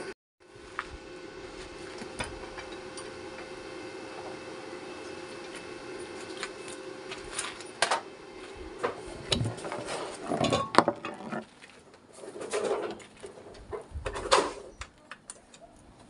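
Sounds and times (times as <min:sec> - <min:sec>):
low steady hum: 0:00.0 - 0:14.4
metal tools clanking: 0:09.2 - 0:11.5.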